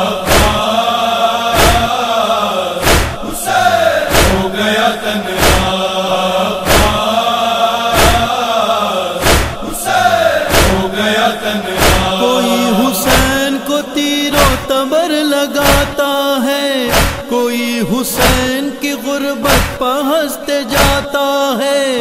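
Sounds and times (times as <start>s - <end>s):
heavy rhythmic beat: 0.0s - 0.8s, 1.6s - 2.0s, 2.8s - 4.7s, 5.4s - 5.8s, 6.6s - 7.1s, 8.0s - 8.3s, 9.2s - 10.9s, 11.8s - 13.5s, 15.6s - 16.1s, 16.9s - 17.4s, 18.2s - 18.6s, 19.4s - 19.9s, 20.8s - 21.2s
people chanting in chorus: 0.0s - 22.0s.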